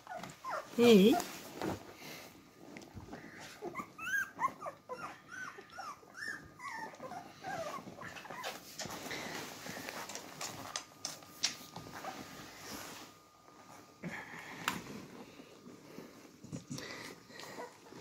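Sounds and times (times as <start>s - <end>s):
puppies whimpering: 0.0s - 1.2s, 3.3s - 9.0s, 15.9s - 18.0s
soft rustling and clicking: 6.9s - 13.8s.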